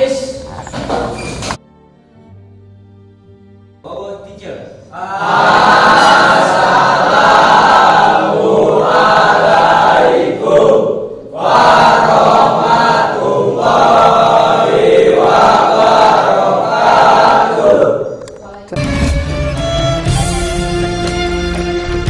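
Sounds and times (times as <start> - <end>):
boys singing in unison: 4.9 - 18.1.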